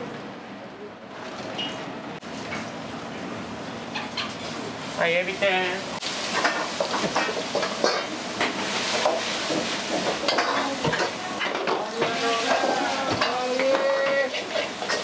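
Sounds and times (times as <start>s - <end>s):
food sizzling: 3.9s - 15.0s.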